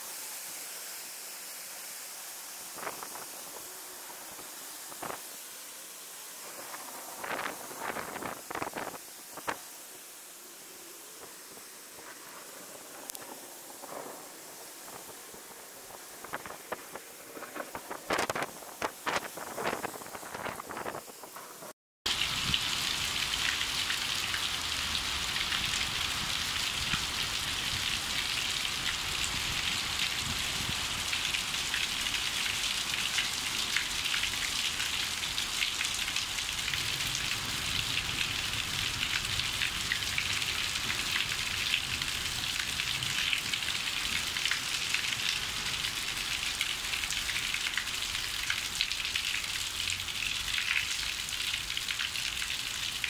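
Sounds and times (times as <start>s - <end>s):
heavy rain falling: 11.2s - 20.7s, 22.1s - 53.0s.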